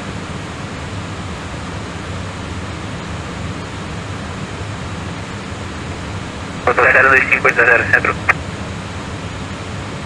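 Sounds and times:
steady rushing noise: 0:06.6 - 0:08.4.

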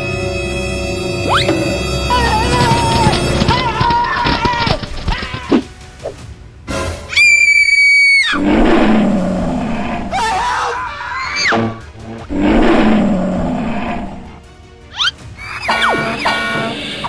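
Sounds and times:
background music: 0:00.0 - 0:17.0
shrill gliding cries: 0:00.6 - 0:05.4, 0:07.1 - 0:13.0
animal roars: 0:08.3 - 0:14.4.

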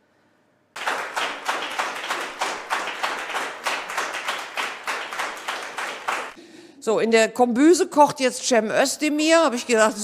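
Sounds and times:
audience applauding: 0:00.8 - 0:06.4.

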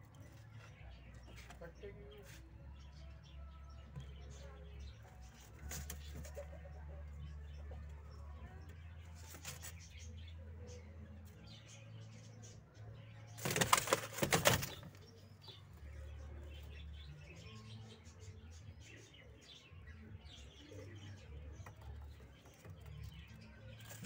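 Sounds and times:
pigeon wings flapping: 0:13.4 - 0:14.8.

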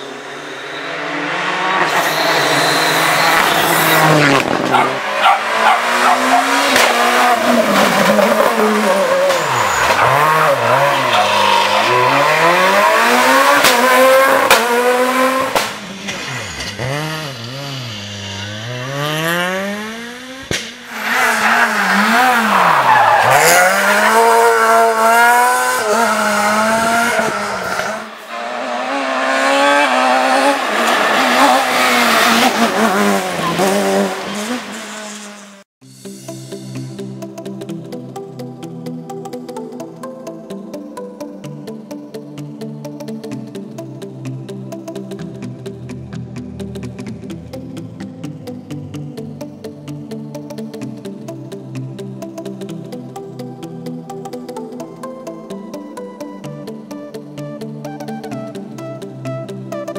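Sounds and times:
rally car engines revving: 0:00.0 - 0:35.7.

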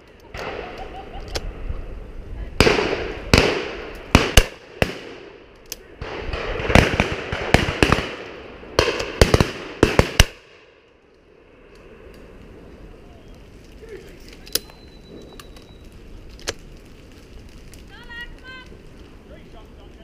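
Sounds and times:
shotgun shots echoing: 0:02.6 - 0:05.4, 0:06.0 - 0:10.6.

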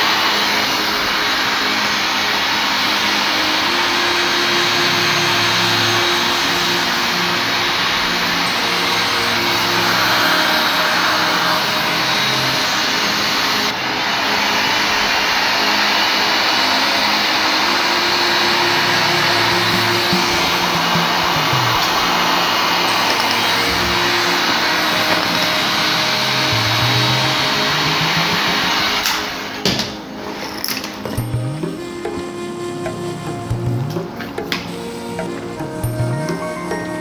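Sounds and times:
blower rushing noise: 0:00.0 - 0:37.0
simple background melody: 0:00.0 - 0:37.0.

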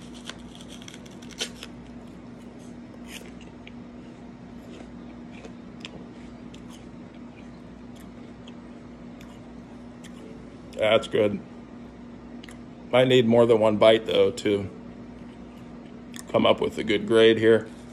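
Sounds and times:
apple crunching: 0:00.0 - 0:10.9
steady low hum: 0:00.0 - 0:17.9
chewing: 0:03.0 - 0:08.6.

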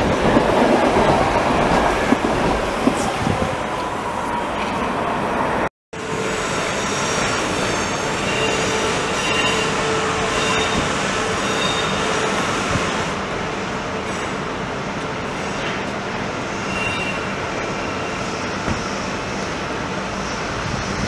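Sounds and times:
train wheels rumbling on rails: 0:00.0 - 0:21.0
high wheel squeals: 0:06.5 - 0:12.7, 0:16.5 - 0:18.3.

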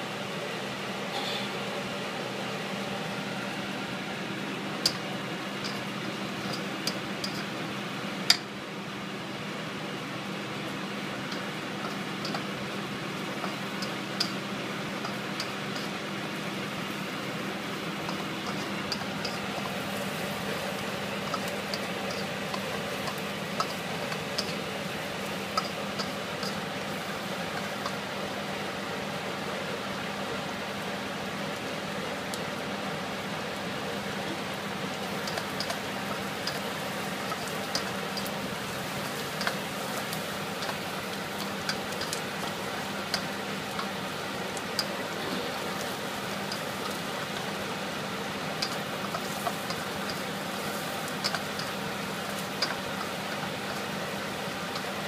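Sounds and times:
steady low hum: 0:00.0 - 0:55.0
garlic sizzling in oil: 0:02.6 - 0:55.0
spatula ticking against wok: 0:04.8 - 0:07.5, 0:11.2 - 0:16.0, 0:18.0 - 0:26.8, 0:35.2 - 0:44.9, 0:46.3 - 0:47.5, 0:48.6 - 0:54.0.

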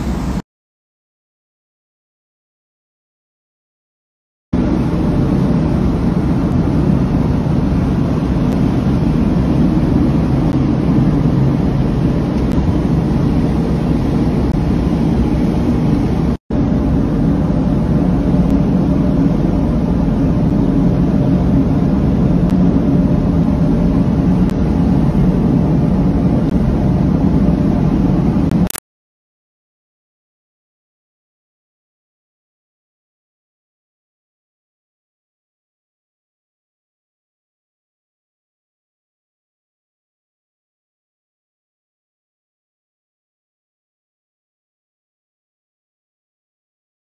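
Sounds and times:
boat engine rumble: 0:00.0 - 0:00.4, 0:04.6 - 0:28.8.

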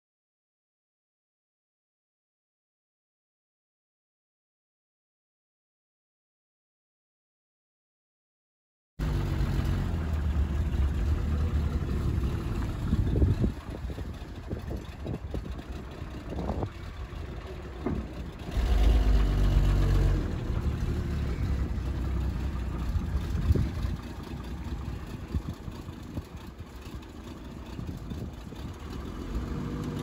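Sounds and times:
pickup engine idling and revving: 0:09.0 - 0:30.0.

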